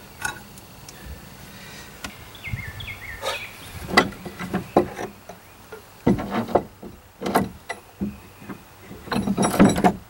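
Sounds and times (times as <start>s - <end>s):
clamps and tools knocking on wood: 6.0s - 10.0s
rattle: 6.0s - 10.0s.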